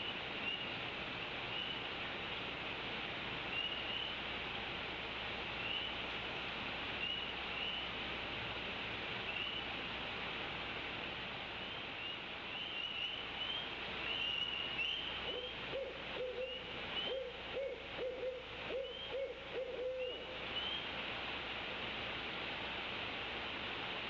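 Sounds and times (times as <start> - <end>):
owl hooting: 12.6 - 20.8.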